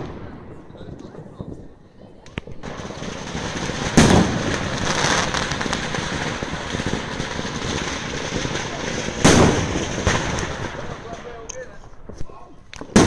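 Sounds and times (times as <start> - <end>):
fireworks crackling: 0.0 - 13.0
aerial shells booming: 3.3 - 8.3, 9.1 - 11.1.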